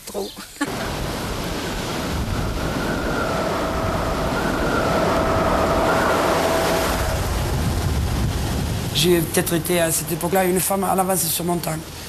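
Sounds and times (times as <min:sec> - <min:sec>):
faint steady whine: 0:00.6 - 0:12.0
truck engine and road noise: 0:00.7 - 0:12.0.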